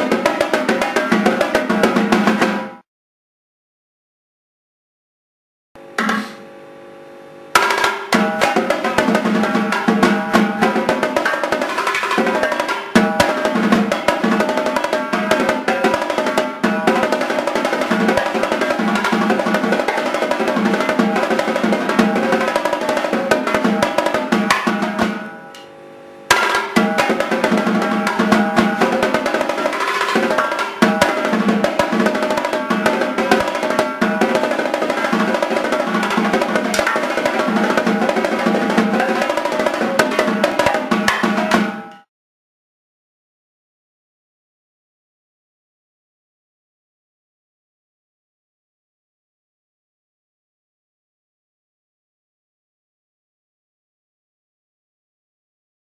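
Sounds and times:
marching tenor drums: 0:00.0 - 0:02.8, 0:07.6 - 0:25.3, 0:26.3 - 0:41.9.

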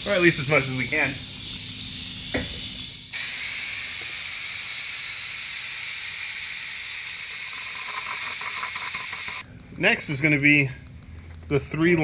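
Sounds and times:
pneumatic fluid extractor hissing: 0:01.6 - 0:09.4.

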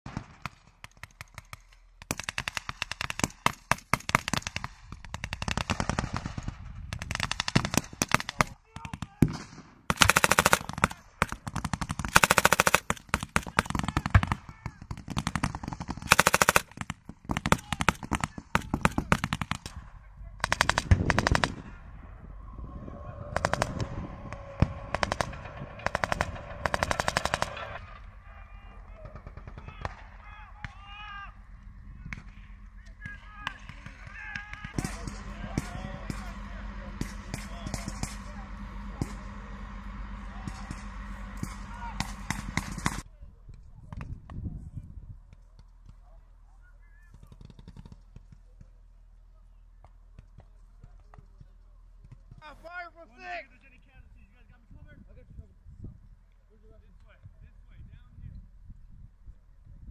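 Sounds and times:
gunshots: 0:00.1 - 0:21.8, 0:23.2 - 0:30.9, 0:32.1 - 0:43.0
steady engine drone: 0:09.8 - 0:13.8, 0:15.2 - 0:43.6
machine-gun bursts: 0:09.9 - 0:19.7, 0:20.4 - 0:21.6, 0:24.9 - 0:27.9.

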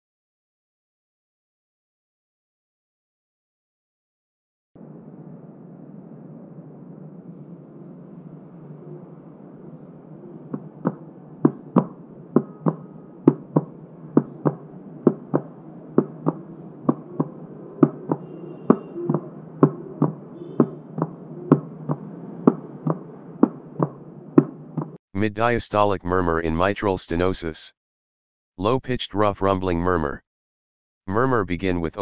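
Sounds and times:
fingertips tapping on cardboard: 0:10.9 - 0:25.0.

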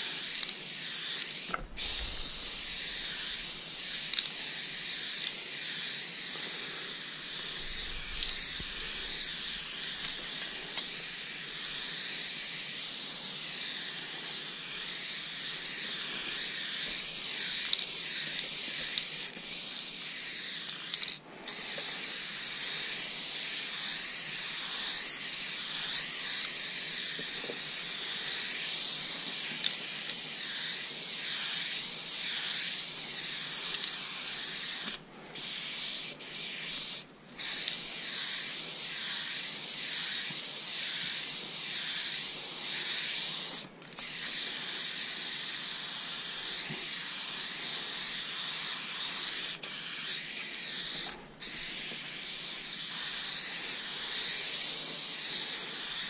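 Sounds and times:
spray paint can hissing: 0:00.0 - 0:56.0.

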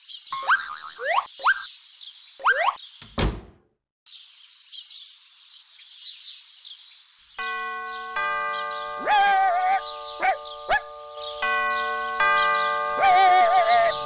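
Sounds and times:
birds twittering: 0:00.0 - 0:03.2, 0:04.1 - 0:14.0
thump: 0:03.2 - 0:03.6.

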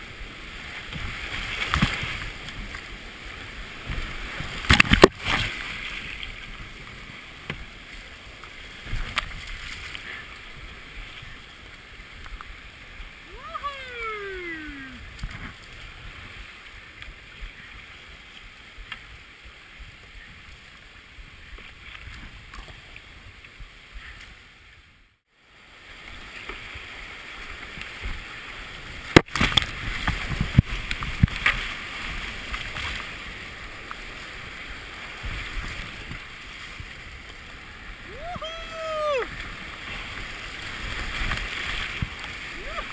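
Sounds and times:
paddle splashes: 0:00.0 - 0:24.7, 0:25.4 - 0:42.9
whitewater rushing: 0:13.1 - 0:15.1, 0:37.4 - 0:42.9.

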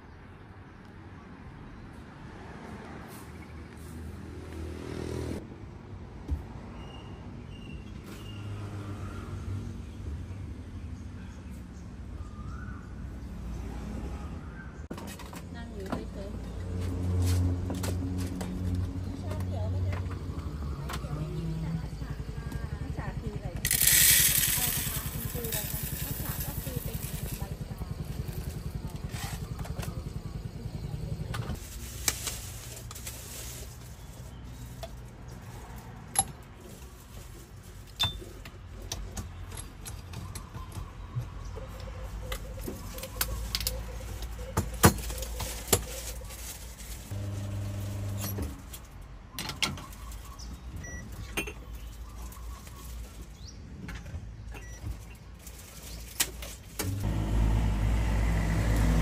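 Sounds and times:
metal tools clinking and tapping: 0:37.9 - 0:40.2
machine hum: 0:47.1 - 0:48.5, 0:56.8 - 0:59.0.

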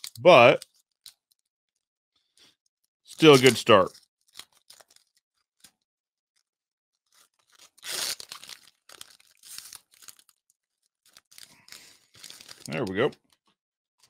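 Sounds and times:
foil crinkling: 0:03.1 - 0:05.2, 0:07.1 - 0:13.1
foil wrapper ripping: 0:04.3 - 0:05.2, 0:07.1 - 0:10.4, 0:11.0 - 0:12.9.

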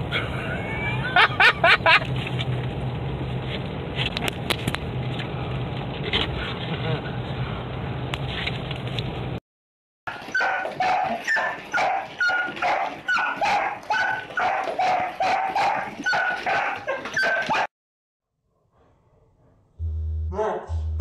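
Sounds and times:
dog yipping: 0:10.1 - 0:17.7.

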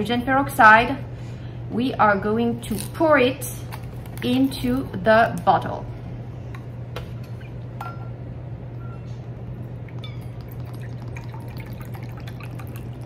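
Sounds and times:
low hum: 0:05.8 - 0:13.0
liquid trickling into metal cup: 0:09.8 - 0:13.0.

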